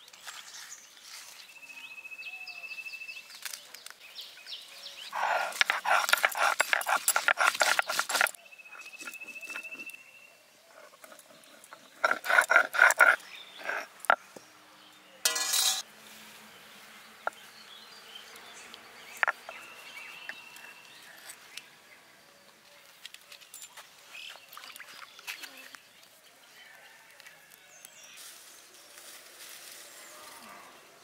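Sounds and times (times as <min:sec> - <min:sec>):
stone roller clattering on grinding slab: 0:05.2 - 0:09.8, 0:10.8 - 0:13.9, 0:15.3 - 0:15.8
stone scraping and knocking: 0:05.2 - 0:09.8, 0:10.7 - 0:14.2, 0:15.3 - 0:15.8, 0:19.2 - 0:19.6.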